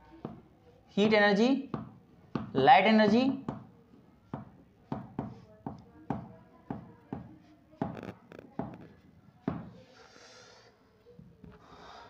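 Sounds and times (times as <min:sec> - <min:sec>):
chalk tapping on a blackboard: 0:00.1 - 0:00.5, 0:01.7 - 0:02.6, 0:03.2 - 0:09.9.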